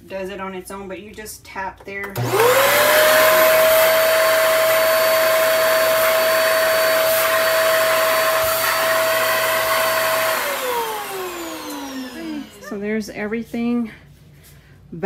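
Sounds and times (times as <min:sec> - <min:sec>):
vacuum whining with rushing air: 0:02.2 - 0:13.0.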